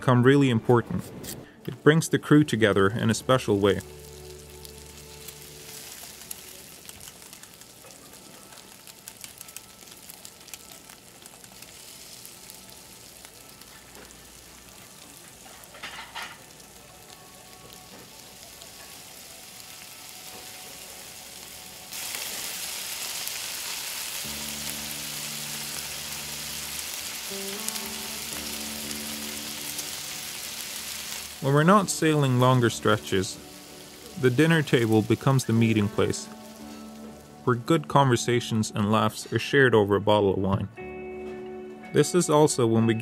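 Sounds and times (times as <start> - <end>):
fish sizzling in a frying pan: 3.2 - 37.5.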